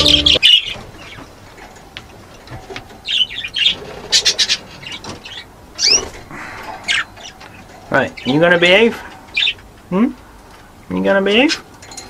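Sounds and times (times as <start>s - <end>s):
budgies chirping: 0.0s - 1.3s, 3.0s - 9.6s.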